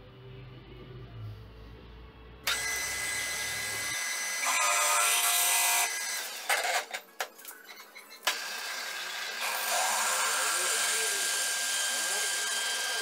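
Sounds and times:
drill scraping into metal: 0:07.7 - 0:13.0.

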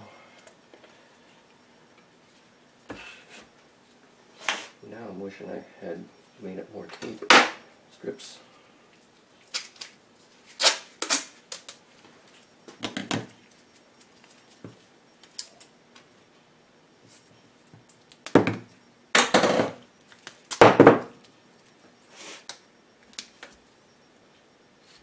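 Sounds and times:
tape ripping and rustling: 0:09.4 - 0:11.8.

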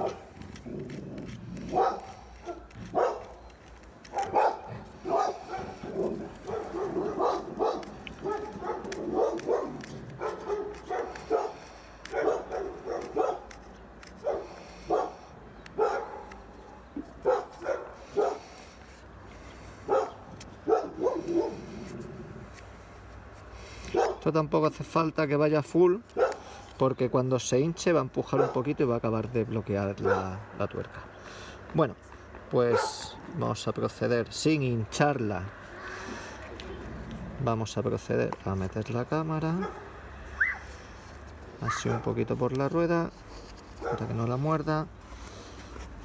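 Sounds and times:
dog barking: 0:00.0 - 0:00.3, 0:01.7 - 0:03.4, 0:04.1 - 0:13.5, 0:14.2 - 0:15.2, 0:15.8 - 0:16.3, 0:17.2 - 0:18.4, 0:19.9 - 0:21.6, 0:23.9 - 0:24.3, 0:26.2 - 0:26.5, 0:28.3 - 0:28.7, 0:30.0 - 0:30.4, 0:32.6 - 0:33.2, 0:39.5 - 0:40.7, 0:41.6 - 0:42.2, 0:43.8 - 0:44.2.

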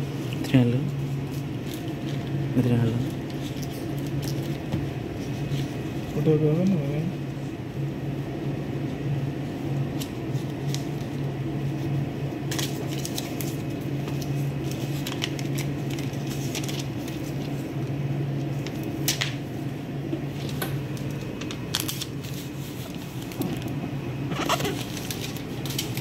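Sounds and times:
steady low hum: 0:00.0 - 0:26.0
paper crackle: 0:01.2 - 0:02.4, 0:09.9 - 0:11.8, 0:12.5 - 0:19.5, 0:20.3 - 0:26.0
paper rustling: 0:12.5 - 0:17.7, 0:20.3 - 0:26.0.

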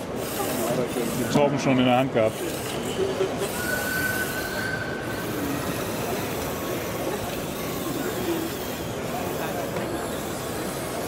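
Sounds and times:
electric model tractor running: 0:00.0 - 0:11.0
thin high whine: 0:02.7 - 0:11.0.

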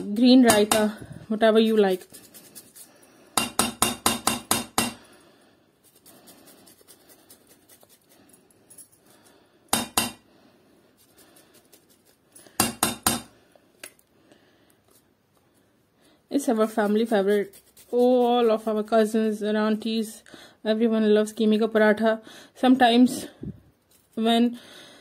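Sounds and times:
utensil knocking against cookware: 0:03.4 - 0:05.0, 0:09.8 - 0:10.2, 0:12.6 - 0:13.3.

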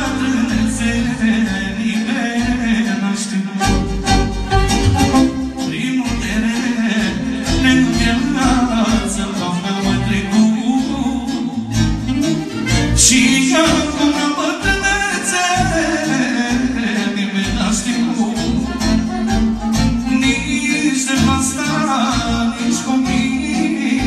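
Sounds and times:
man singing into a microphone: 0:00.0 - 0:04.0, 0:05.6 - 0:11.9, 0:12.9 - 0:19.2, 0:20.0 - 0:24.0
amplified band with steady beat: 0:03.6 - 0:10.5, 0:11.7 - 0:24.0.

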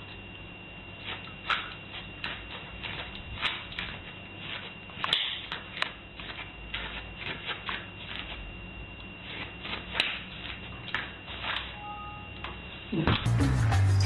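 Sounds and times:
faint high whine: 0:00.0 - 0:05.1, 0:11.0 - 0:13.2.

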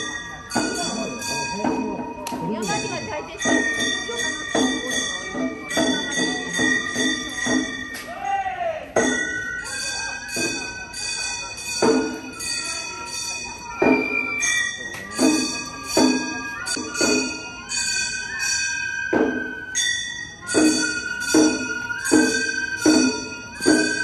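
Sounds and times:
bamboo flute long high notes: 0:15.7 - 0:19.9.

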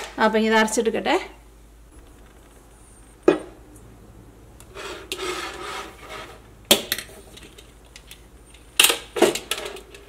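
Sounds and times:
scraping across tabletop: 0:04.6 - 0:06.5.

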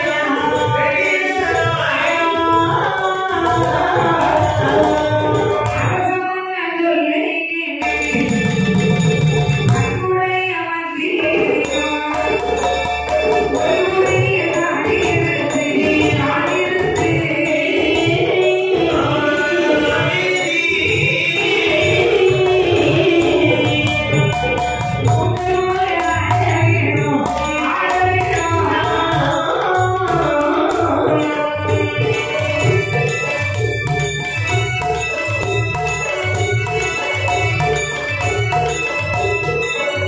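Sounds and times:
rapid jingling percussion: 0:00.0 - 0:06.2, 0:07.8 - 0:10.4, 0:11.2 - 0:40.0
person singing: 0:00.0 - 0:08.9, 0:09.7 - 0:33.6
hand drum beat: 0:07.8 - 0:10.0, 0:11.6 - 0:19.7, 0:21.0 - 0:40.0.

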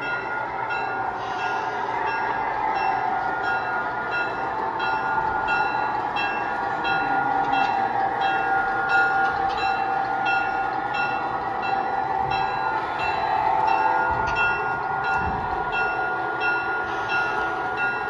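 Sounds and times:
model locomotive bell ringing: 0:00.0 - 0:18.0.

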